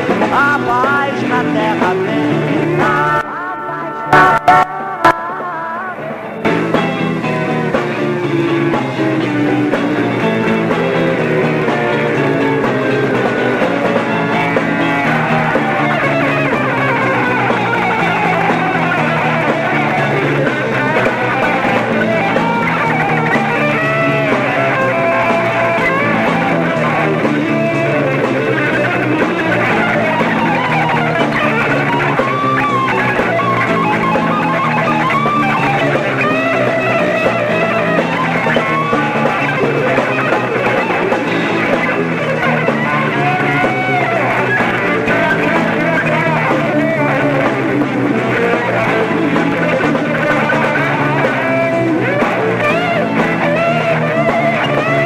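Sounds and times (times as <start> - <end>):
bass guitar: 0.0 - 55.0
electric guitar lead: 0.0 - 55.0
drums with cymbals: 6.5 - 55.0.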